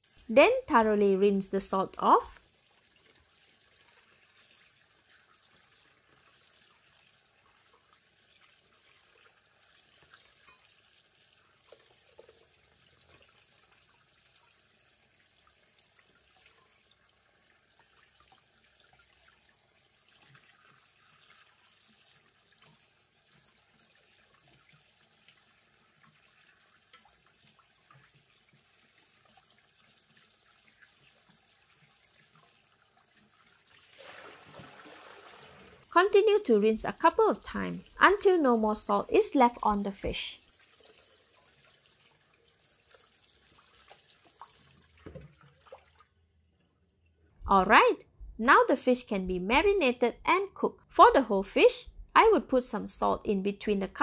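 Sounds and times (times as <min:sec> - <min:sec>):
tap water into steel basin: 0:09.2 - 0:13.8, 0:40.5 - 0:46.1.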